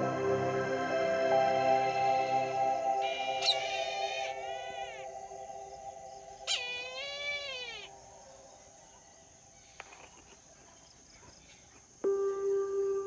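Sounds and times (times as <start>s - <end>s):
bird of prey calling: 2.9s - 9.4s.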